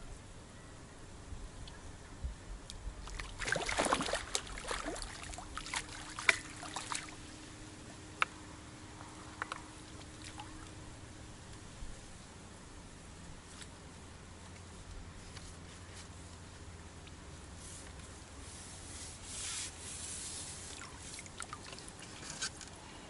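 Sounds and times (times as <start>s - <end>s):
fish splashing in water: 3.1s - 7.2s.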